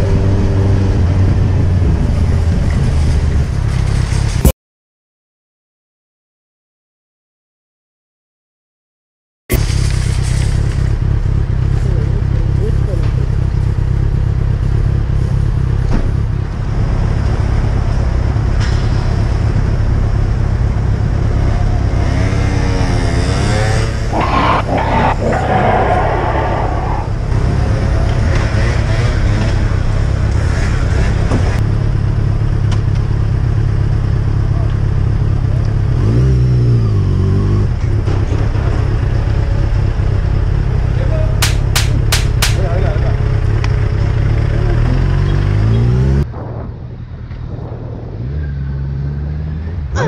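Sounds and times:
road noise: 0.0s - 4.5s, 9.5s - 50.0s
motorcycle engine rumbling: 9.5s - 36.0s, 36.8s - 50.0s
quick sharp sounds: 41.4s - 42.6s.

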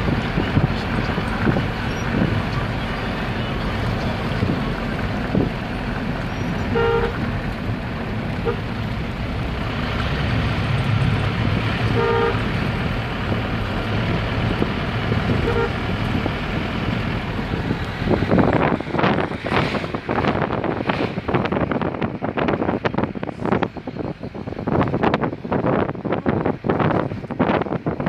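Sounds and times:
vehicle engine and road noise: 0.0s - 28.0s
vehicle horn tooting: 6.5s - 7.3s, 8.4s - 8.7s, 11.9s - 12.6s, 15.3s - 15.8s.

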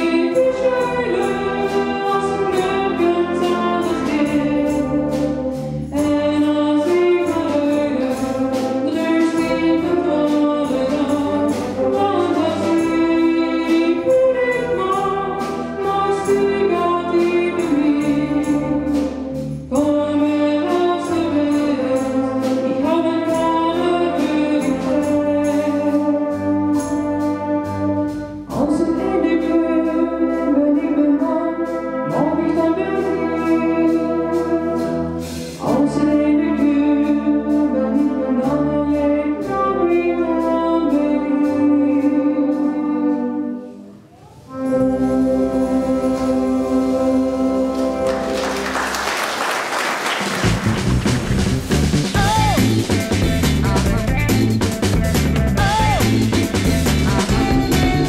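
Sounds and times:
wind and brass band playing: 0.0s - 58.0s
person singing: 52.1s - 53.2s, 55.5s - 58.0s.

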